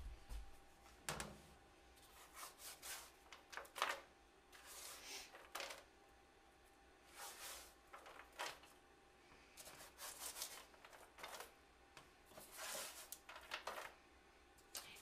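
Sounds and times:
spatula scraping granola on metal sheet: 2.2 - 3.2, 4.6 - 5.5, 7.1 - 8.3, 9.6 - 11.5, 12.4 - 13.7.

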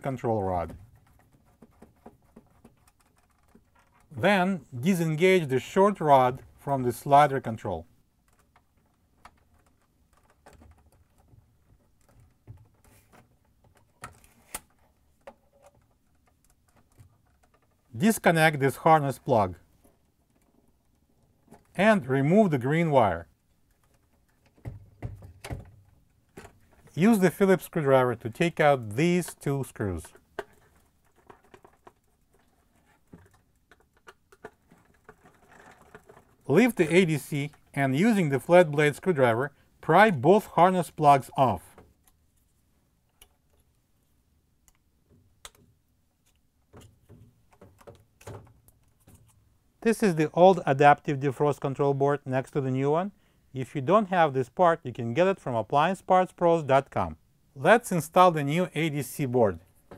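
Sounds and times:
plastic and wire clicks and rattling: 0.6 - 4.2, 8.2 - 18.0, 19.6 - 21.8, 23.2 - 27.0, 29.2 - 37.7, 44.6 - 49.4.

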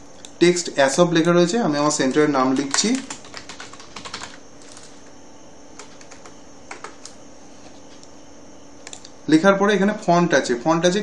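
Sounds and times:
low background hum: 0.0 - 11.0
keyboard typing: 2.1 - 5.1, 5.8 - 7.2.

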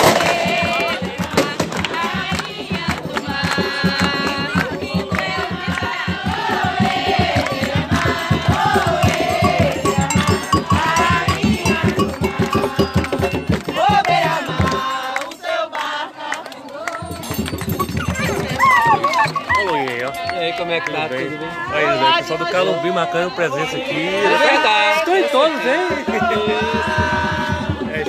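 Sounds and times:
fast hand clapping: 0.0 - 21.3
crowd singing a chant: 0.0 - 28.0
percussion: 0.0 - 28.0.

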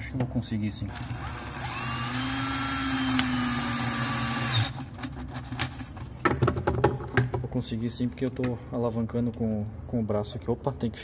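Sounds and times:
cordless drill whining: 0.9 - 4.8.

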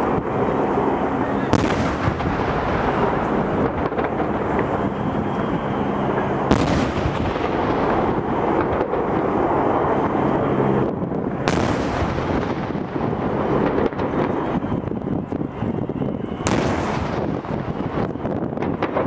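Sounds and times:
steady rushing background noise: 0.0 - 19.0
artillery gun shots: 1.5 - 4.2, 6.5 - 7.9, 11.5 - 12.8.

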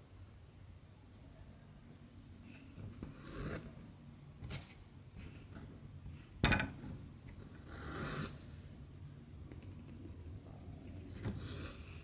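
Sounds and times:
sharp scrape on fabric: 2.9 - 3.8, 7.7 - 8.6.

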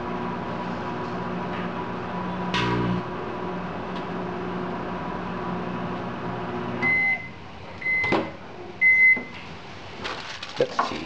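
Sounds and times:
microwave oven humming: 0.0 - 10.0.

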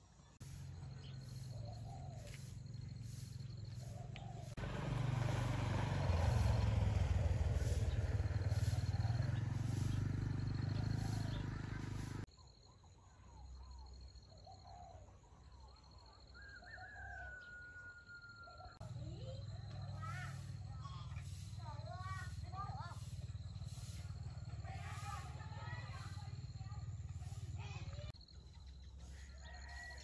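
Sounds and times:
bird chirps: 0.3 - 4.6, 7.4 - 30.0
rooster crowing: 16.4 - 18.8, 29.1 - 30.0.

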